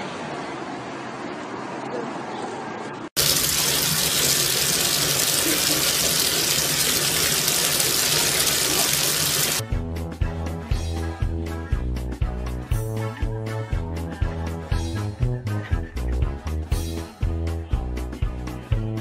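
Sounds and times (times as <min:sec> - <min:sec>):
water running into bathtub: 0:03.2 - 0:09.6
music with steady beat: 0:09.6 - 0:19.0.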